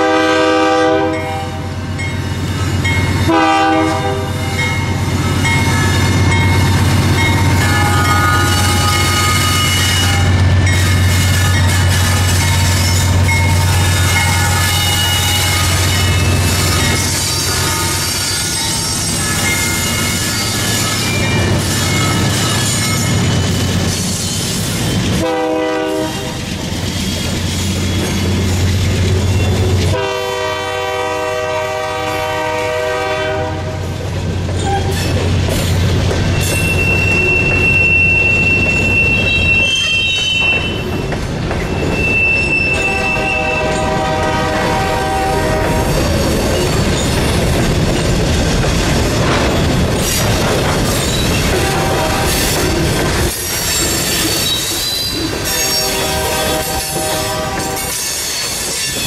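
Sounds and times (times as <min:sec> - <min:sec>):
locomotive air horn: 0:00.0 - 0:01.8, 0:03.2 - 0:04.6, 0:07.4 - 0:19.0, 0:25.2 - 0:26.4, 0:29.9 - 0:33.9, 0:42.0 - 0:46.0, 0:51.6 - 0:52.6, 0:55.5 - 0:58.0
wheel squeal: 0:07.7 - 0:25.1, 0:36.3 - 0:43.8, 0:53.5 - 0:56.0, 0:57.7 - 0:59.0
wheels clacking over rail joints: 0:33.9 - 0:59.0.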